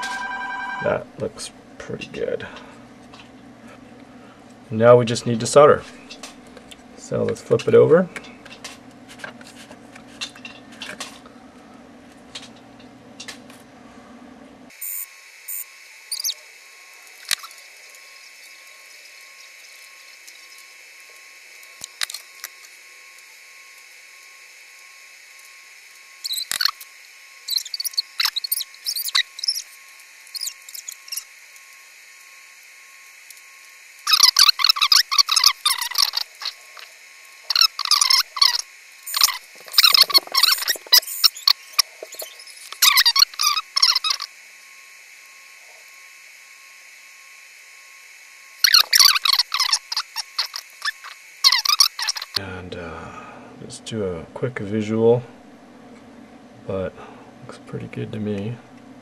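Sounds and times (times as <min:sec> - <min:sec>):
low hum with light clicks: 0:01.2 - 0:13.7
solder flux crackling and sizzling: 0:16.9 - 0:46.8.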